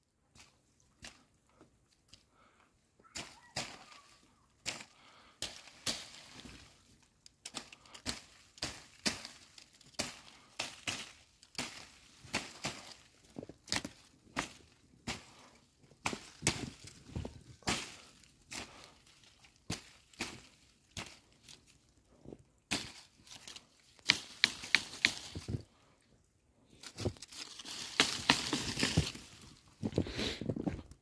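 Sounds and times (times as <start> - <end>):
footsteps crunching in snow: 7.6 - 25.7, 26.8 - 31.0.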